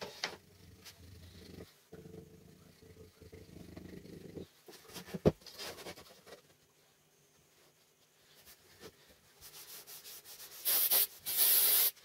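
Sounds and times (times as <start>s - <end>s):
glue bottle squeezing: 10.6s - 12.0s.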